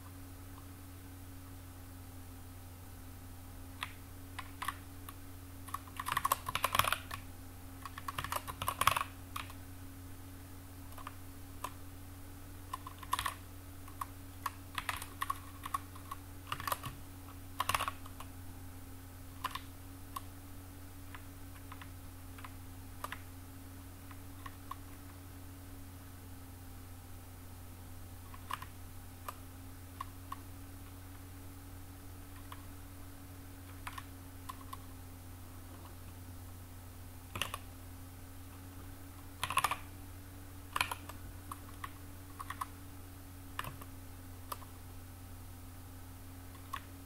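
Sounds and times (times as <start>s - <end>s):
computer keyboard typing: 3.8s - 9.6s, 10.9s - 11.8s, 12.7s - 18.3s, 19.4s - 20.3s, 21.1s - 23.3s, 24.1s - 25.1s, 28.2s - 29.4s, 32.3s - 32.7s, 33.6s - 34.9s, 37.3s - 37.7s, 39.2s - 39.9s, 40.7s - 42.7s, 43.5s - 44.8s, 46.5s - 47.0s.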